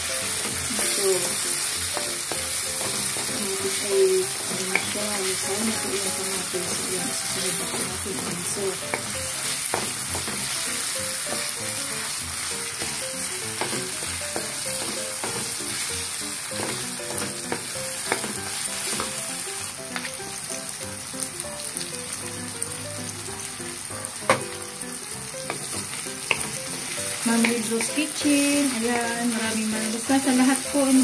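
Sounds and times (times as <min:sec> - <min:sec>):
food sizzling in oil: 0:00.0 - 0:31.0
spatula knocking on pan: 0:01.2 - 0:06.1, 0:07.5 - 0:10.7, 0:11.3 - 0:11.6, 0:12.7 - 0:15.7, 0:16.5 - 0:19.2, 0:24.2 - 0:24.6, 0:25.4 - 0:29.5.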